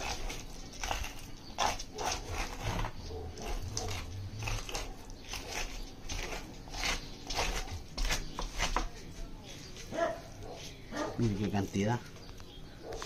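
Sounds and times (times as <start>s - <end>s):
knife scraping fish bone: 0.0s - 9.9s.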